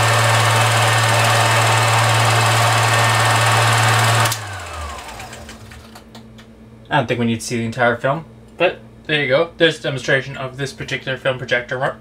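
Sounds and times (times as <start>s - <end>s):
motor winding down whine: 0.0s - 6.0s
film projector running: 0.0s - 6.1s.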